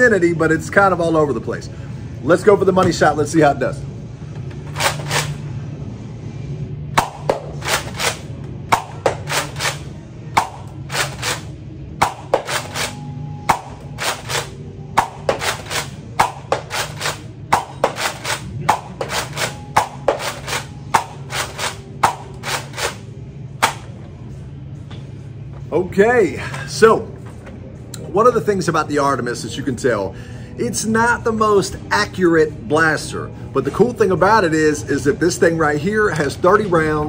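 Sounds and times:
toy blaster pumping and firing: 0:07.6 - 0:08.2.

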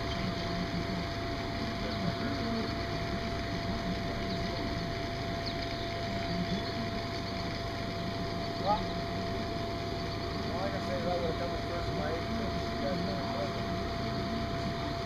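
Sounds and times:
distant voices: 0:00.0 - 0:15.0.

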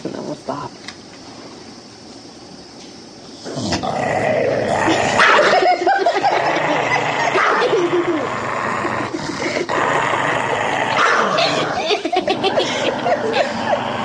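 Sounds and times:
dog growling: 0:03.4 - 0:14.0.

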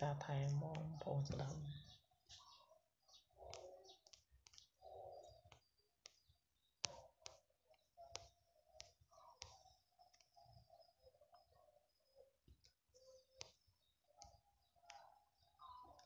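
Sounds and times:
faint sharp clicks: 0:03.4 - 0:10.8.

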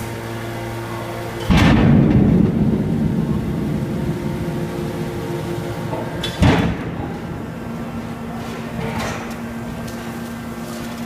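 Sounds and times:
hydraulic pump humming: 0:00.0 - 0:11.0
press rumbling: 0:01.2 - 0:10.2
sharp metal bang: 0:01.4 - 0:08.7.

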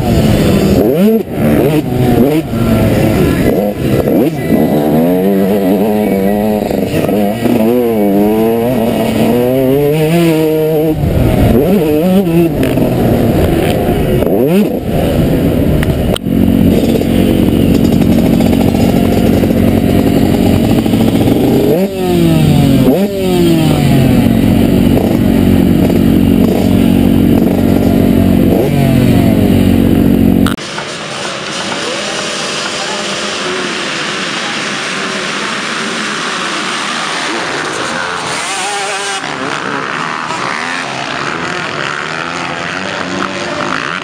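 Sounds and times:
motocross engine revving: 0:00.0 - 0:44.0.

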